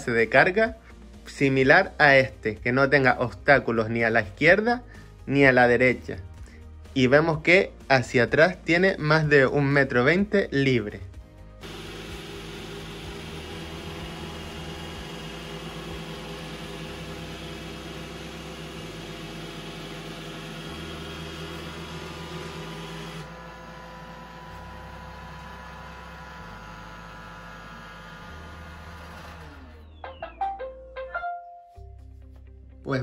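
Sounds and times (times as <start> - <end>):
robot vacuum motor whirring: 11.6 - 30.0.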